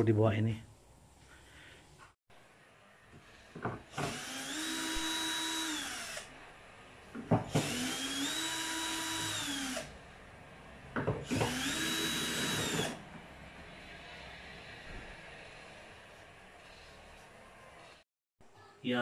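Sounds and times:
drill motor whine: 3.9s - 6.3s, 7.6s - 9.9s, 11.3s - 13.0s.

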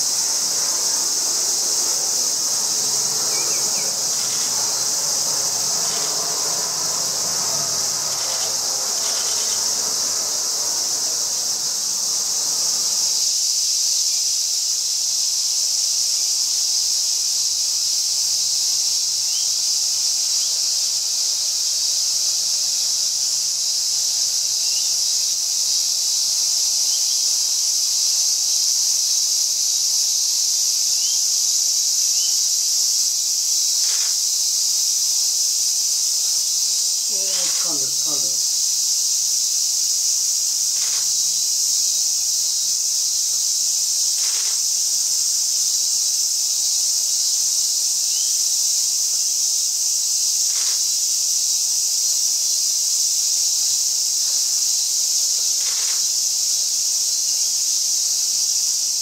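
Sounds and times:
insect chorus drone: 0.0s - 59.0s.

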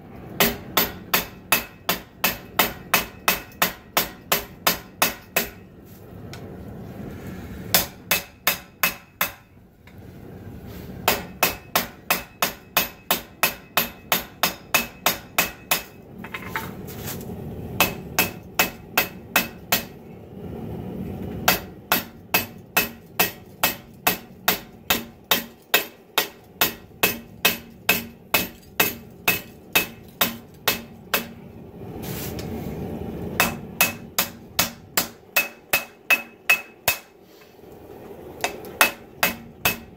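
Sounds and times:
low steady rumble: 0.0s - 39.9s
hammer ringing on anvil: 11.1s - 16.5s, 33.4s - 37.1s.

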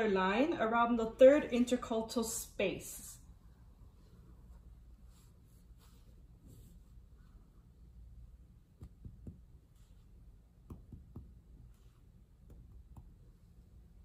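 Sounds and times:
soft dull finger taps on chest: 8.7s - 9.6s, 10.6s - 11.7s, 12.4s - 13.2s.

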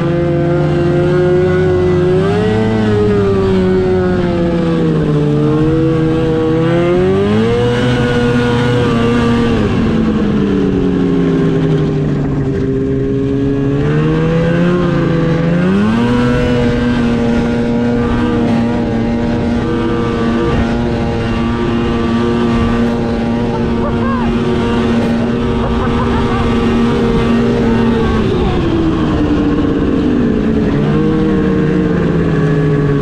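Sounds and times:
snowmobile engine running: 0.0s - 33.0s.

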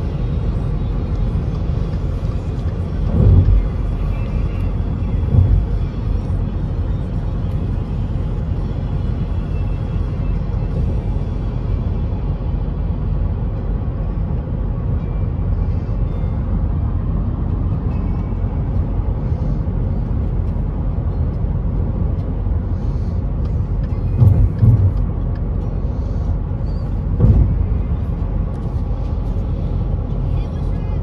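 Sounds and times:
vehicle cabin road rumble: 0.0s - 31.0s
short thumps: 23.8s - 25.2s, 27.0s - 28.1s.

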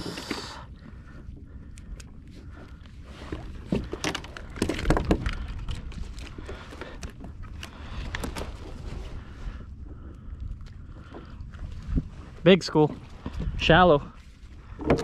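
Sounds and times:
fishing gear knocking and rattling: 3.3s - 8.6s.

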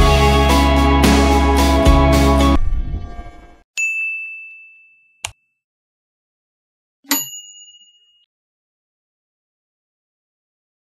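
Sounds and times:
background music: 0.0s - 3.6s
bell-like ding: 3.8s - 5.5s, 7.1s - 8.3s.

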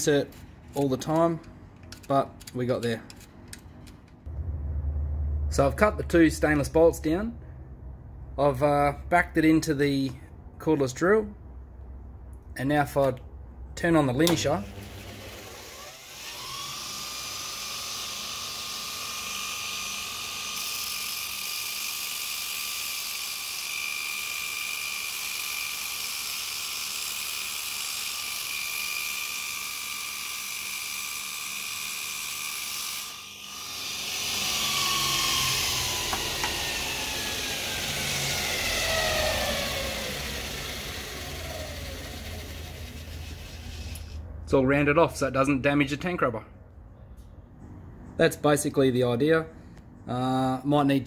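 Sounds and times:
low rumble: 4.3s - 8.5s
belt sander motor whine: 14.3s - 21.9s, 33.0s - 44.2s.

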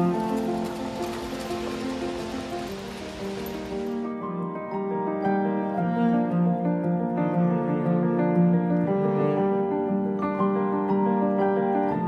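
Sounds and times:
instrumental music with held notes: 0.0s - 12.0s.

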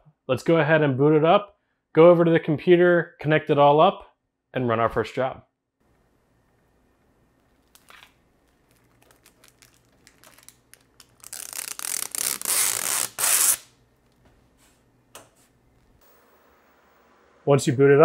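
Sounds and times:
plastic film peeling crackle: 7.4s - 14.2s.

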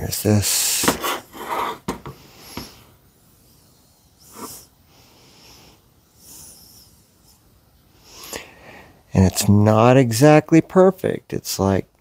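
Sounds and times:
low room noise: 0.0s - 12.0s
person breathing through the nose: 3.6s - 9.0s.

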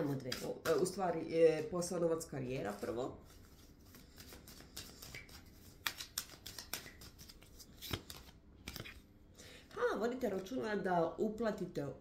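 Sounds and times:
cards clicking and snapping: 3.9s - 9.0s.

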